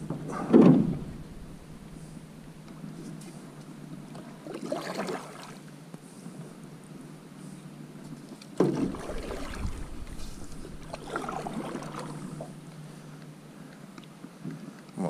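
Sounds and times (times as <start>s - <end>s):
paddle splashing water: 0.0s - 5.8s, 8.6s - 13.0s
paddle knock: 8.6s - 12.6s.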